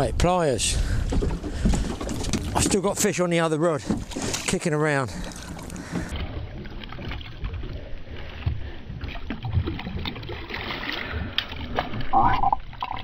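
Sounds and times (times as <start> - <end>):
water sloshing against boat: 0.0 - 13.0
dull knocks and splashes: 0.9 - 7.8, 8.4 - 13.0.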